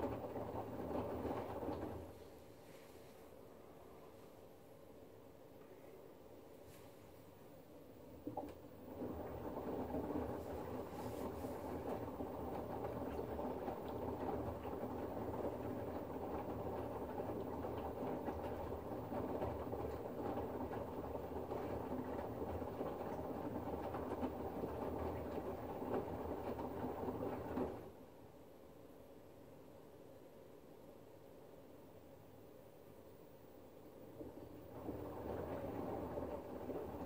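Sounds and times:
washing machine drum tumbling laundry: 0.0 - 2.2, 8.1 - 28.0, 34.0 - 37.0.

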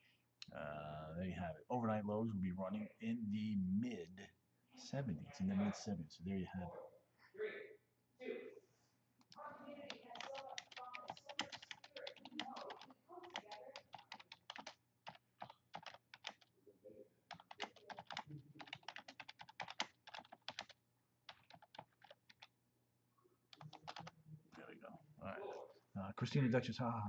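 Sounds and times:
typing on a keyboard: 9.9 - 16.5, 17.3 - 22.5, 23.5 - 24.2.

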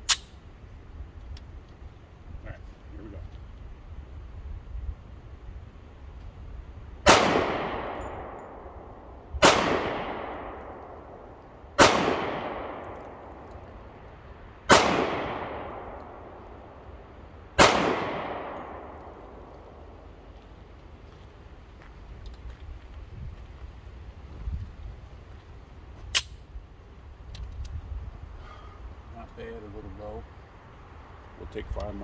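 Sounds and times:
pistol shots with echo: 7.0 - 8.8, 9.4 - 11.2, 11.8 - 13.4, 14.7 - 16.4, 17.6 - 19.4.

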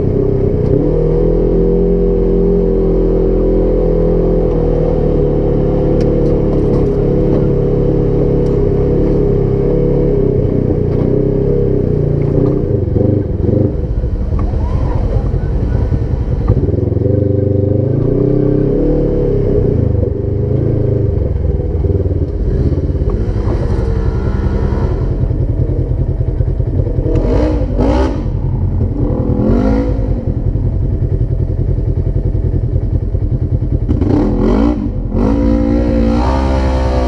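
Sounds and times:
engine revving: 0.0 - 37.0.

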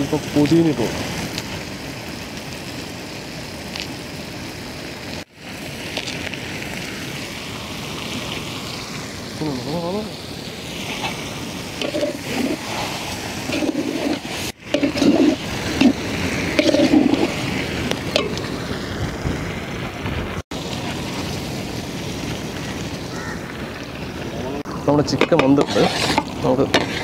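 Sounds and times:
steady rushing noise: 6.3 - 27.0
spatula scraping in a metal pot: 11.8 - 16.0, 16.6 - 17.4, 25.2 - 27.0.

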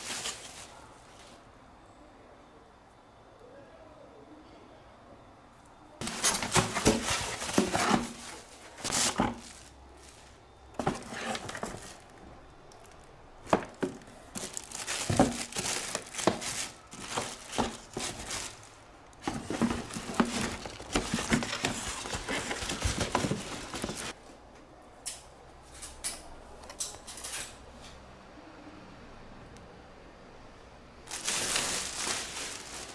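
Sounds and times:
plastic wrapping crinkling: 0.0 - 1.4, 6.0 - 12.2, 12.8 - 24.2, 31.0 - 32.9.

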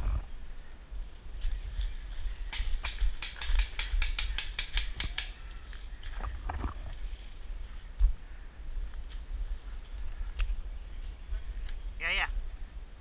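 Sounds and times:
leaves and branches crackling: 0.0 - 12.9.

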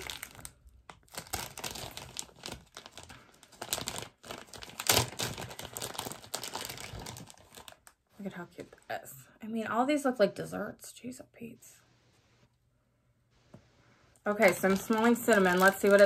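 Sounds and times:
plastic bag crinkling: 0.0 - 8.0, 14.2 - 16.0.

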